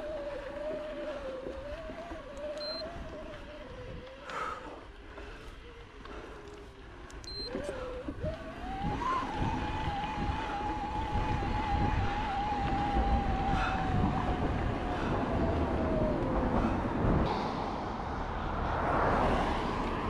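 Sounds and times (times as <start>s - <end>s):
wind noise: 0.0s - 6.3s, 7.2s - 20.0s
electric bike motor whining: 5.2s - 16.7s.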